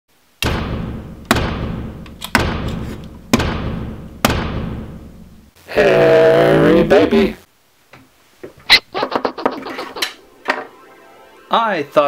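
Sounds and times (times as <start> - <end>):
heavy booming footstep thuds: 0.4 - 5.1.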